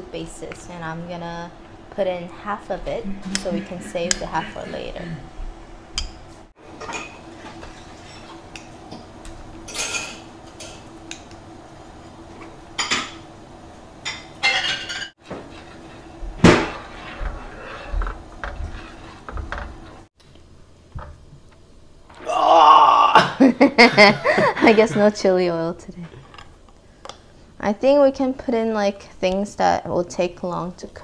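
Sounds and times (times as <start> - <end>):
low hum: 0.0 - 6.5.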